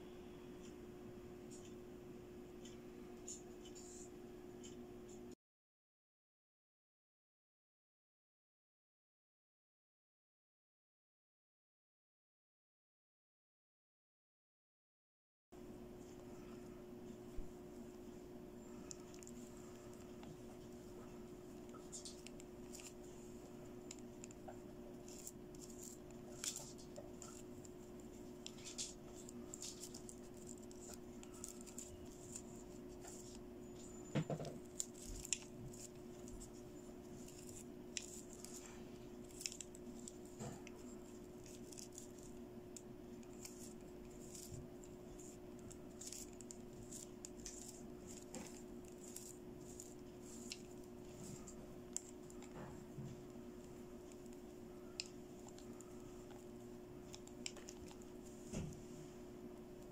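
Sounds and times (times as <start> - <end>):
steady low hum: 0.0 - 5.4, 15.6 - 59.9
doll handling rustles and clicks: 17.3 - 59.0.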